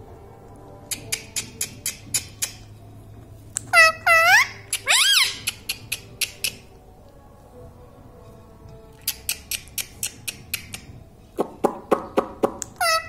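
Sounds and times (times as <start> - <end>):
parakeet clicking its beak: 0.9 - 2.7, 4.7 - 6.6, 9.0 - 12.8.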